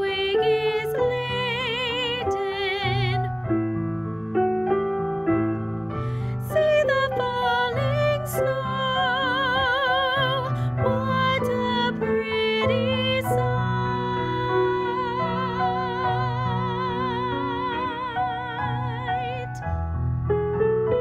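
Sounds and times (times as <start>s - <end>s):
woman singing with vibrato: 0.0s - 3.3s, 6.4s - 19.6s
piano accompaniment: 0.0s - 21.0s.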